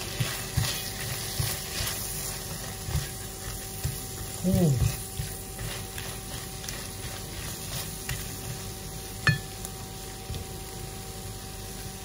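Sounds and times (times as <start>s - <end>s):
food sizzling in a pan: 0.0s - 12.0s
sharp ringing clink: 9.3s - 9.5s.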